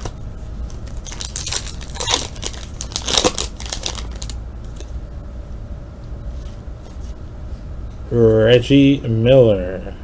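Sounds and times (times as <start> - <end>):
plastic wrapper crinkling and tearing: 0.7 - 4.4.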